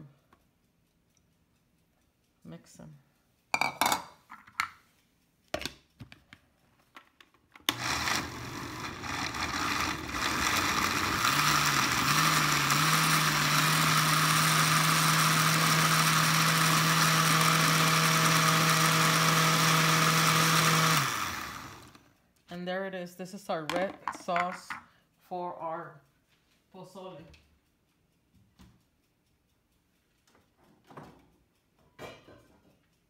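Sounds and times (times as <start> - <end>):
blender running: 7.7 - 22.0.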